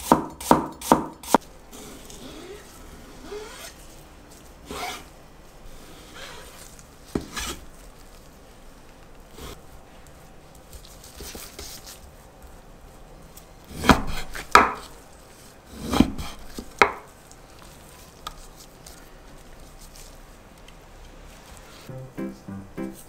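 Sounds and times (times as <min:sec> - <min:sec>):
handling meat: 0:06.6 - 0:13.6, 0:16.5 - 0:21.8.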